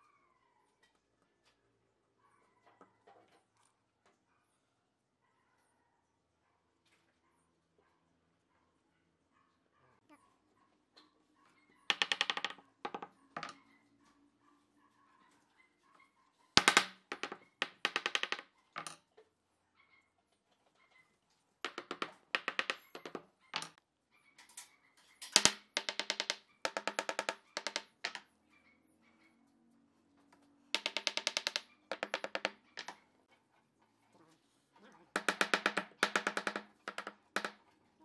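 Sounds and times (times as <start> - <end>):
wooden mallet tapping wood: 21.7 - 23.8, 25.4 - 28.2, 30.8 - 32.9, 35.2 - 37.6.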